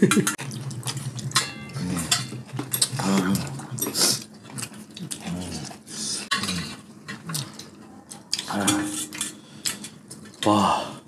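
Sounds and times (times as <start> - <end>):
eating noises: 0.0 - 10.5
metal utensils clinking on bowls: 1.0 - 3.9, 6.3 - 6.8, 8.4 - 9.9.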